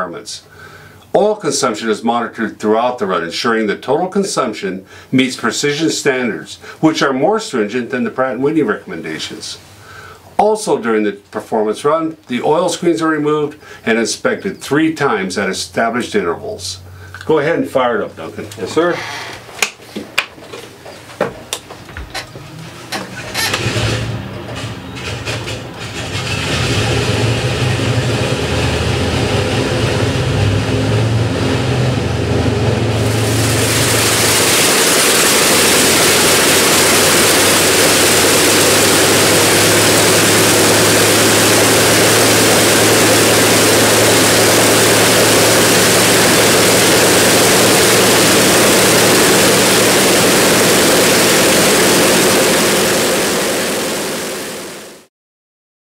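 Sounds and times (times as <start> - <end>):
radial engine and propeller running: 22.3 - 55.1.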